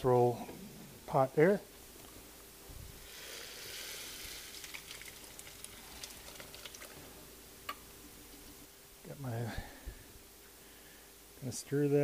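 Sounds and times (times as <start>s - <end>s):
broth pouring into a pot: 3.0s - 7.3s
light clicks and splatters: 4.6s - 7.1s.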